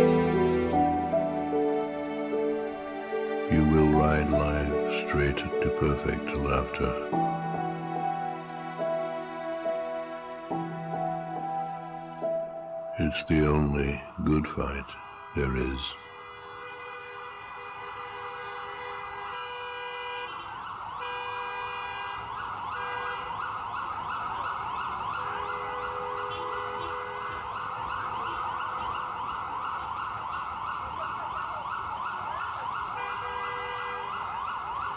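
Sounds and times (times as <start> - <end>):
siren yelping: 22.2 - 33.2, 33.9 - 34.9.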